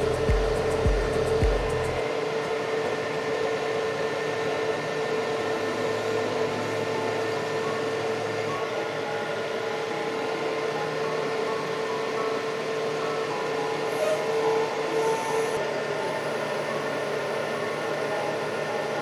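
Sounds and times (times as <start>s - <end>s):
metal lathe whining: 0.0s - 19.0s.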